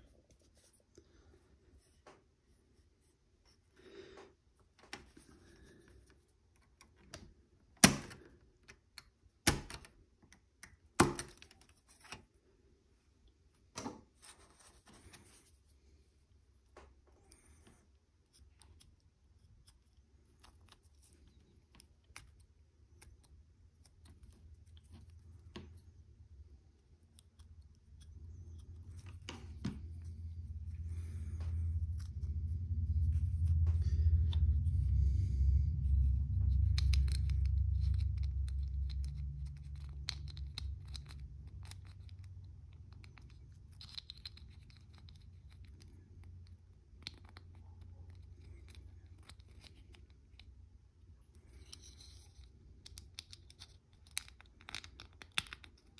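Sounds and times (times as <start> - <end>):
low rumble: 22.1 - 53.0
plastic pieces clicking together: 52.8 - 55.9.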